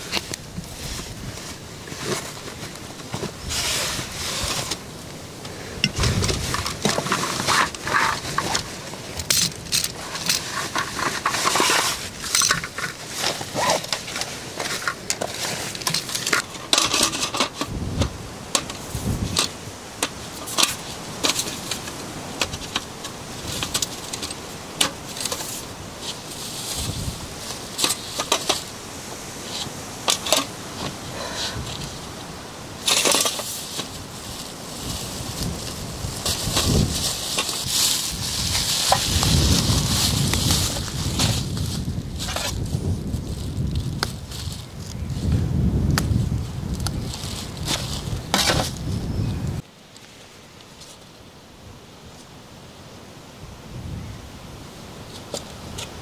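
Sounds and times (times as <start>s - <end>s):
nylon bag rustling: 0.0s - 5.2s, 5.9s - 17.8s, 18.5s - 49.1s
plastic bag crinkling: 32.9s - 45.3s.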